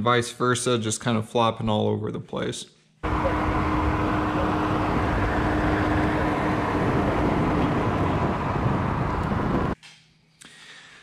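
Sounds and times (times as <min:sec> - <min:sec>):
wind and road noise: 0:03.0 - 0:09.8.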